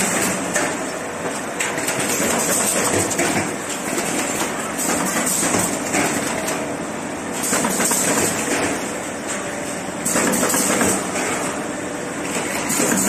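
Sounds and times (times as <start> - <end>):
machine clattering: 7.4 - 8.8, 10.0 - 11.4, 12.3 - 13.0.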